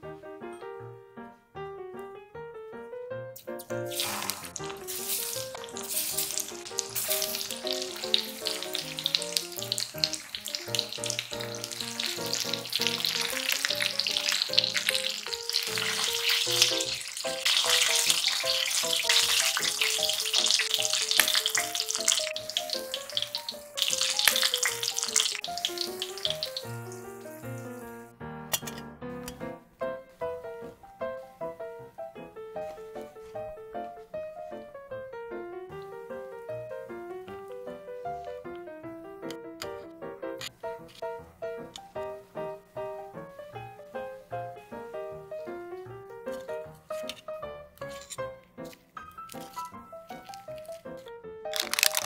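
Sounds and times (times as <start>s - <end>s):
background music: 0.0s - 52.0s
chicken deep-frying in oil: 3.6s - 28.1s, 51.5s - 52.0s.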